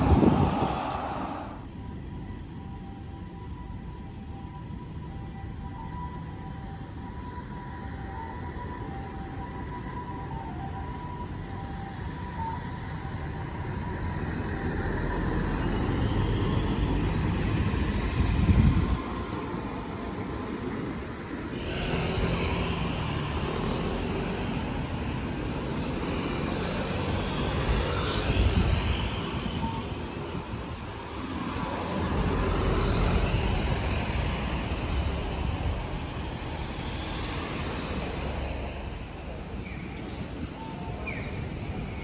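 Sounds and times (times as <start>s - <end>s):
cars passing: 0.0s - 1.9s, 13.3s - 42.0s
bus engine passing close: 0.0s - 2.0s, 12.3s - 42.0s.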